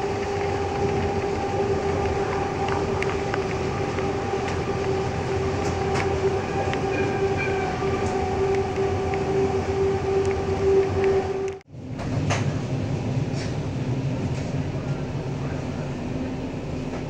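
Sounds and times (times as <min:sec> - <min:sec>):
wheels clicking over rail joints: 0:00.0 - 0:12.5
train rumbling drone: 0:00.0 - 0:17.0.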